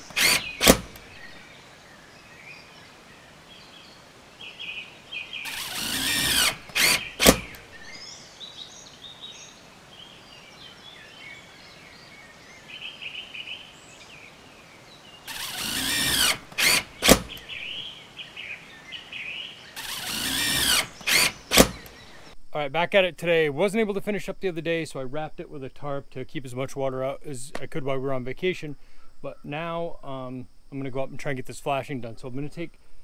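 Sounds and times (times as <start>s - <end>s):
power tool bursts: 0.0s - 1.4s, 5.4s - 8.0s, 15.3s - 17.8s, 19.8s - 22.3s
sharp clicks: 0.0s - 1.4s, 5.5s - 7.9s, 15.3s - 17.7s, 19.8s - 22.4s
birds chirping: 0.0s - 22.4s.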